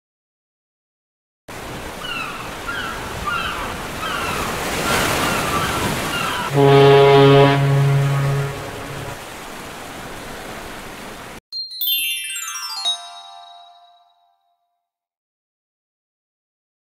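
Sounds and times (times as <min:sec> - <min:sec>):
ocean surf washing: 0:01.5 - 0:11.4
gulls crying: 0:02.0 - 0:09.2
foghorn blast: 0:06.5 - 0:09.2.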